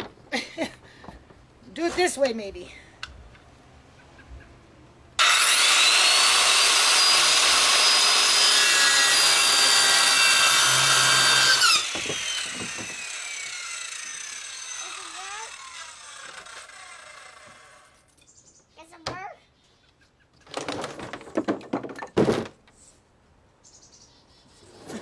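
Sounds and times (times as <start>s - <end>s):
circular saw cutting wood: 5.2s - 18.0s.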